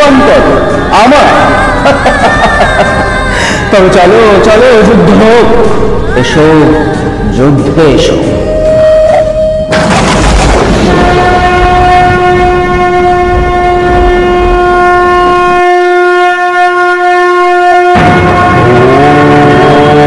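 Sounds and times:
long horn-like blast: 0:00.0 - 0:03.8, 0:08.3 - 0:20.0
dense rumbling: 0:00.0 - 0:15.8.

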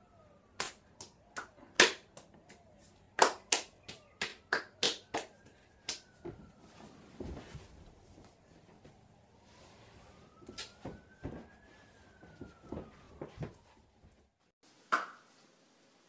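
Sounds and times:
hands clapping and slapping: 0:00.6 - 0:06.3, 0:14.9 - 0:15.2
soft dull thud: 0:10.8 - 0:11.5.

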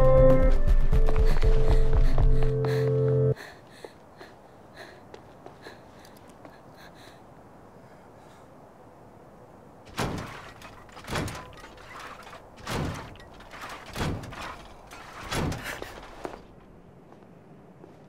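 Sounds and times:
heavy thudding footsteps: 0:00.0 - 0:04.1, 0:09.9 - 0:18.0.

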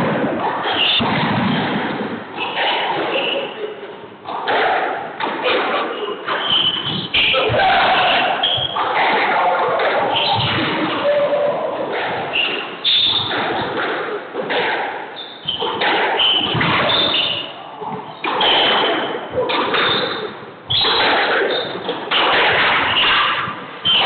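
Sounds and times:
sneakers squeaking on floor: 0:02.4 - 0:03.7, 0:05.4 - 0:11.0, 0:12.2 - 0:14.3, 0:15.1 - 0:24.0
racket striking ball: 0:11.8 - 0:24.0.

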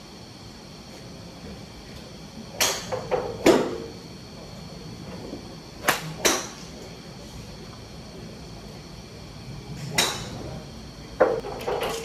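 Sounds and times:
golf clubs striking balls: 0:05.8 - 0:06.7, 0:09.8 - 0:10.4, 0:11.2 - 0:12.0.

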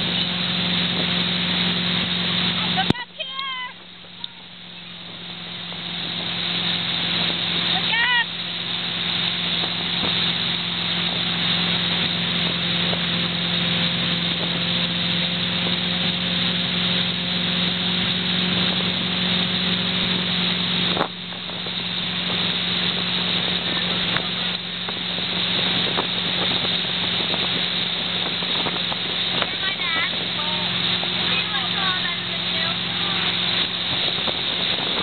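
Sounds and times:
churning water: 0:00.0 - 0:35.0
motorboat engine running: 0:00.0 - 0:35.0
wind on microphone: 0:00.0 - 0:35.0.

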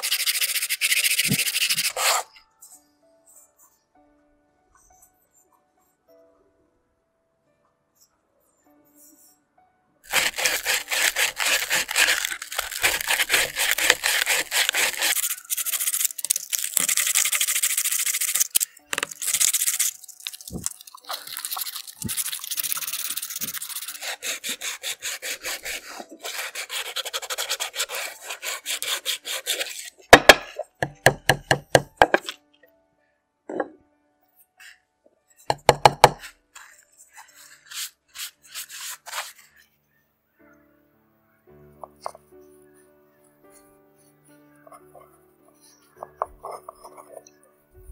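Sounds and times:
sandpaper rasping on coconut shell: 0:00.0 - 0:02.3, 0:10.1 - 0:30.0, 0:37.2 - 0:39.4.

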